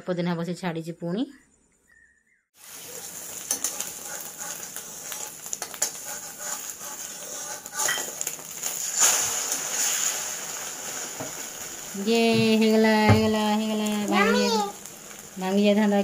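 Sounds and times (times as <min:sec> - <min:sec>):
omelette sizzling in pan: 0:02.6 - 0:16.0
spatula scraping pan: 0:02.8 - 0:10.2.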